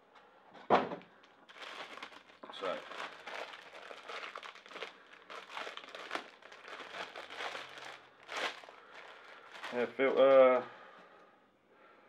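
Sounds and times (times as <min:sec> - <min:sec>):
plastic wrapping crinkling: 0:01.2 - 0:10.6.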